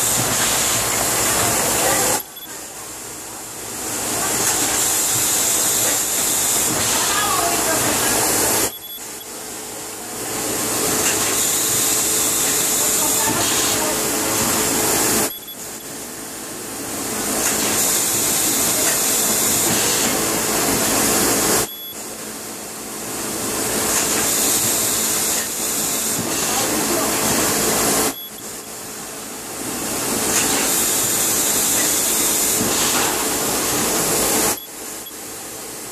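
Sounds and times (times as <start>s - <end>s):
machine air hiss: 0.0s - 2.6s, 3.9s - 9.3s, 10.3s - 16.0s, 17.2s - 21.7s, 23.8s - 28.6s, 29.8s - 35.1s.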